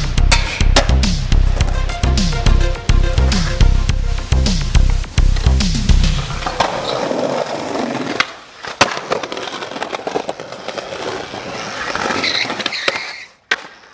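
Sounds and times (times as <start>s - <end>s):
skateboard wheels rolling on concrete: 0.0s - 2.2s, 3.1s - 13.9s
skateboard clacks: 6.4s - 13.9s.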